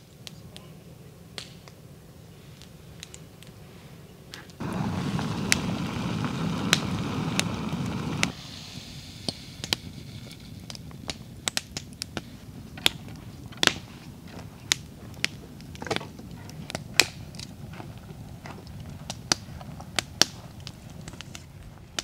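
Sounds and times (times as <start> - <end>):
campfire crackling and popping: 0.0 - 22.0
gas stove rushing: 4.6 - 10.8.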